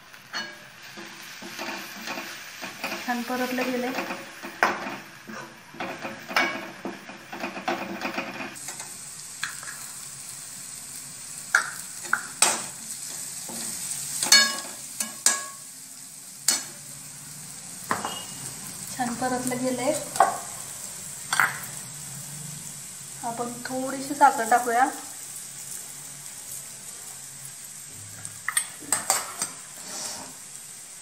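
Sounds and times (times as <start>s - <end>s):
food sizzling in oil: 0.0s - 31.0s
metal spatula scraping a pan: 0.3s - 8.6s, 17.9s - 18.4s, 28.8s - 30.5s.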